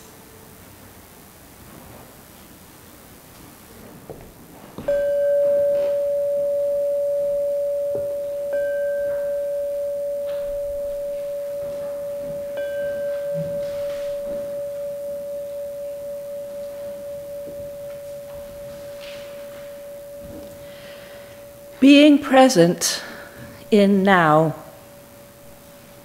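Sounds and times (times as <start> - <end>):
metal bell ringing: 4.9 - 23.2.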